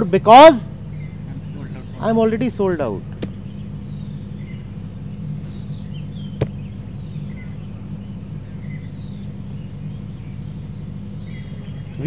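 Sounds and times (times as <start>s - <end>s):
steady low hum: 0.0s - 12.0s
faint bird chirps: 3.3s - 12.0s.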